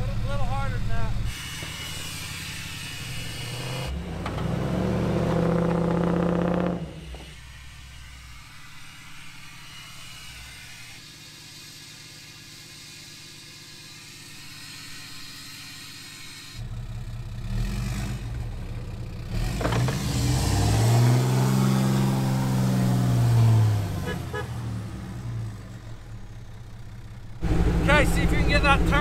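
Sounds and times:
engine revving under load: 0.0 - 11.0, 16.2 - 29.0
vehicle engine idling faintly: 21.5 - 29.0.

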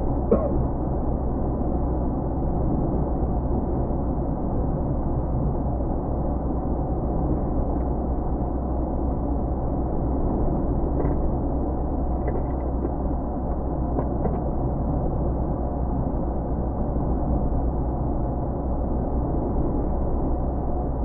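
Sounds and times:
vehicle engine and road rumble: 10.4 - 15.2.

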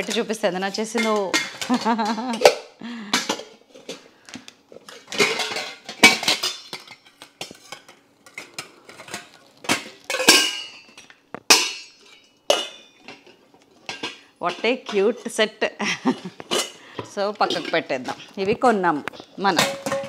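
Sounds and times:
brass pots clanking: 4.8 - 15.4, 19.5 - 20.0.

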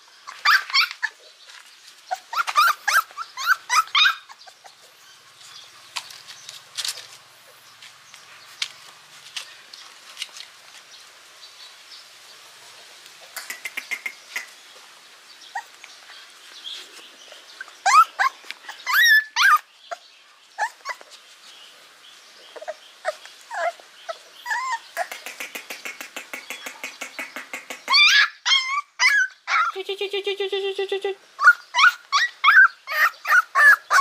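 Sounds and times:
puppies whimpering and crying: 0.2 - 1.2, 2.1 - 5.0, 17.6 - 20.0, 20.6 - 21.2, 22.5 - 25.1, 27.9 - 34.0.

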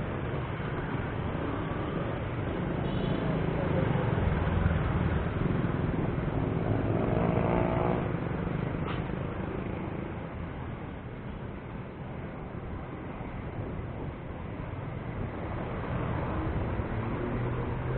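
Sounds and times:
motorcycle and car engines: 0.0 - 17.9
road and wind noise: 0.0 - 17.9.

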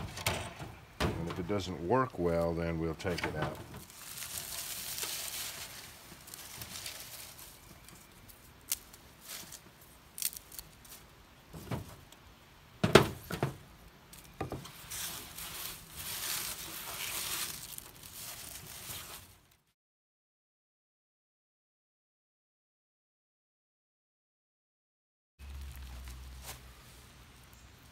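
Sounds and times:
dry leaves rustling and crunching: 3.8 - 11.7, 14.1 - 19.6, 25.4 - 27.6.

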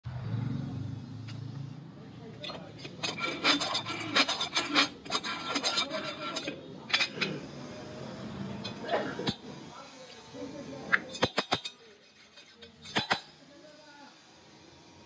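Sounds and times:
valve seat cutter scraping metal: 2.5 - 13.3.

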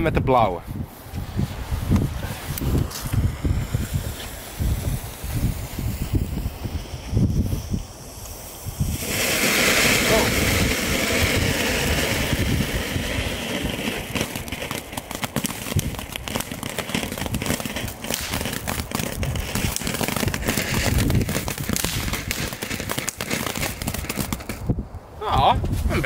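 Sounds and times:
firework crackling: 0.8 - 24.8
firework fountain hissing: 0.9 - 24.7.

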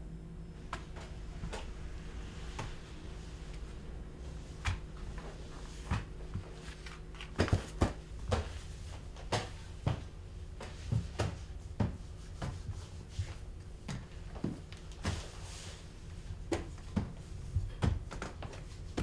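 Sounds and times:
low hum: 0.0 - 19.0
hands and knees knocking on floor: 7.2 - 12.8.

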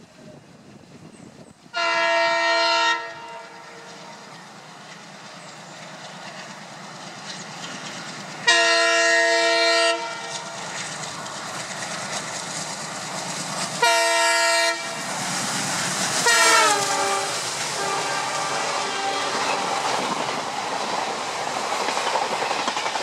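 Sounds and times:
train rumble: 0.0 - 23.0
locomotive horn blasts: 1.8 - 3.9, 8.4 - 10.4, 13.8 - 15.0, 16.2 - 19.6.

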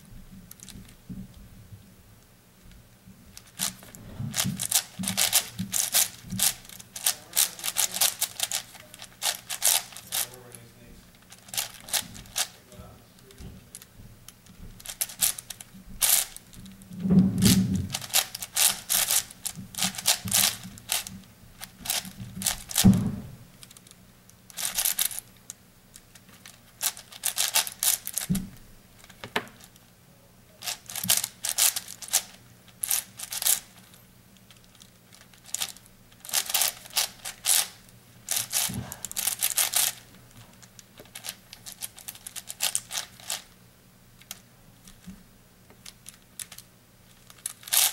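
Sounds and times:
puzzle cube plastic clicking: 3.3 - 10.3, 13.7 - 16.8, 17.4 - 28.4, 30.6 - 33.9, 34.5 - 40.0, 40.6 - 43.5, 44.2 - 45.1, 45.7 - 47.9
low thumps: 22.2 - 23.6.

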